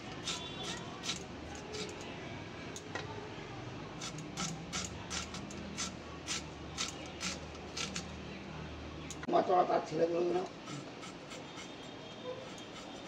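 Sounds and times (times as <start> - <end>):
blade cutting vegetable: 0.1 - 2.0, 4.0 - 8.1, 10.5 - 13.0.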